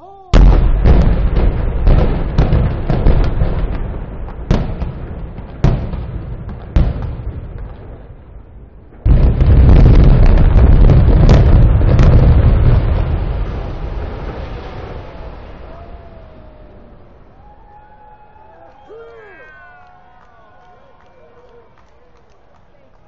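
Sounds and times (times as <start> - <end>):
sharp echoing blasts: 0.0 - 16.0
building collapsing rumble: 0.3 - 18.6.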